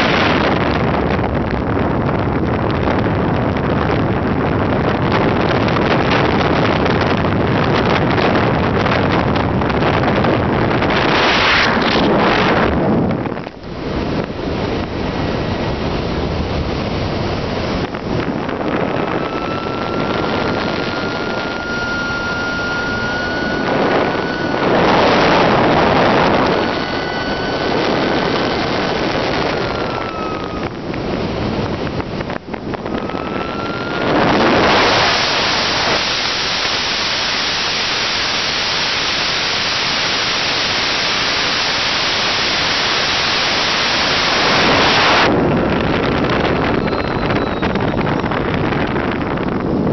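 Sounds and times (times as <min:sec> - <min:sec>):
airflow rushing over camera: 0:00.0 - 0:49.9
thin whistle: 0:18.9 - 0:30.7, 0:46.7 - 0:48.4.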